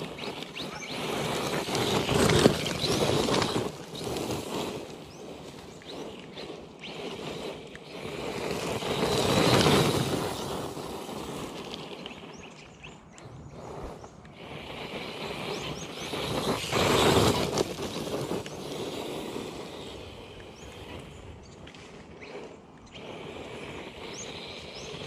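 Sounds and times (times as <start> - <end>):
rc buggy driving past: 0.0 - 25.0.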